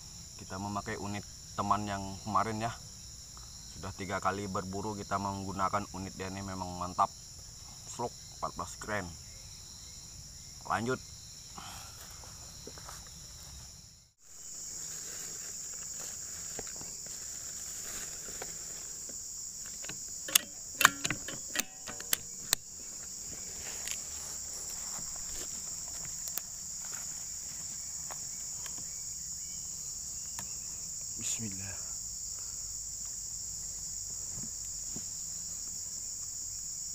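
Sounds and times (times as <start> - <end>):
insects chirring: 0.0 - 36.9
sharp clicks and knocks: 19.6 - 22.7.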